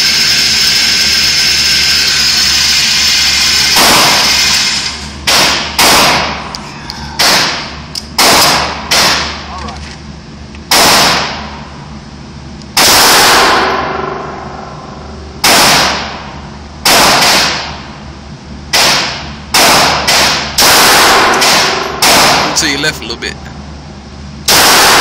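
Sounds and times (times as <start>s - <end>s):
pistol shots echoing indoors: 3.8s - 4.3s, 5.2s - 6.4s, 7.2s - 9.4s, 10.7s - 11.5s, 12.8s - 14.7s, 15.4s - 16.2s, 16.8s - 17.8s, 18.7s - 22.6s, 24.5s - 25.0s.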